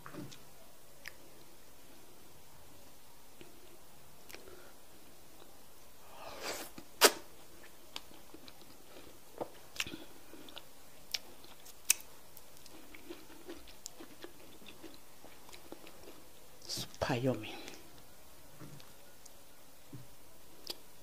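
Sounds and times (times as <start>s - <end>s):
wet mouth chewing sounds: 1.0s - 1.5s, 6.5s - 16.2s.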